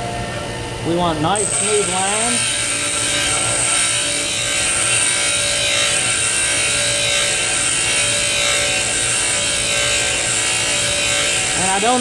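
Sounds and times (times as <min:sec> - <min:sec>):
motor hum: 0:00.0 - 0:12.0
bench grinder grinding steel: 0:00.9 - 0:12.0.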